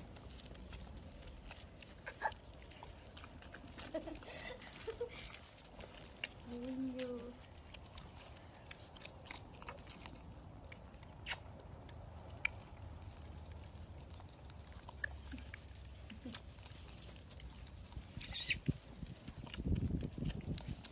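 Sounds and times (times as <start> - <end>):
low steady rumble: 0.0 - 20.9
wet smacking and clicking: 7.0 - 20.9.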